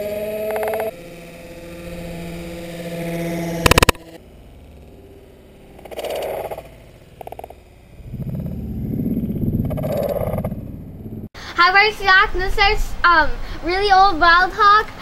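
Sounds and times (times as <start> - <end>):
model plane engine running: 0.0 - 11.3.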